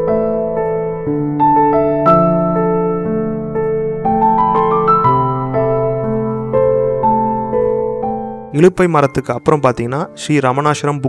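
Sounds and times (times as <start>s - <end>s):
slow piano-like keyboard melody: 0.0s - 11.0s.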